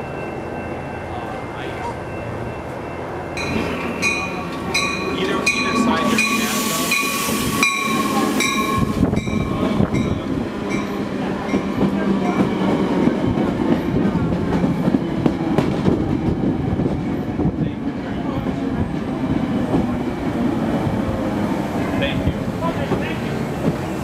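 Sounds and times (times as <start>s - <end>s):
bell ringing: 0.0s - 12.4s
train rumbling past: 0.0s - 24.0s.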